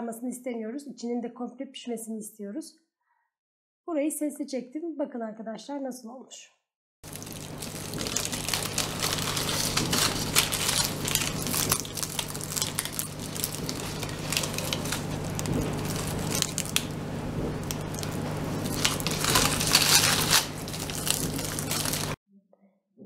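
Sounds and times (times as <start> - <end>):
flaky pastry tearing and crackling: 7.1 - 22.2.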